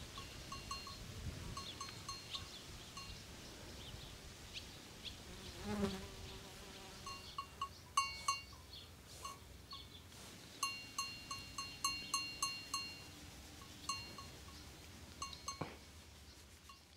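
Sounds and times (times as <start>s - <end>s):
small metal bells ringing: 0.0s - 3.2s, 7.1s - 10.0s, 10.6s - 14.6s, 15.2s - 15.8s.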